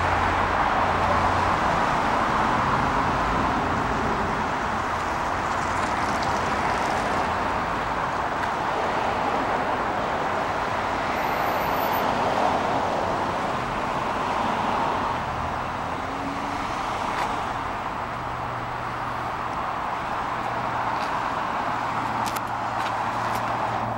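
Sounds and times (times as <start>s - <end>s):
cars passing on street: 0.0s - 23.9s.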